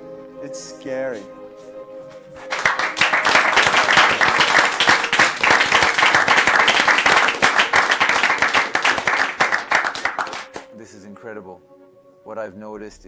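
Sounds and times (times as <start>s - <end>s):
audience applauding: 2.4s - 10.7s.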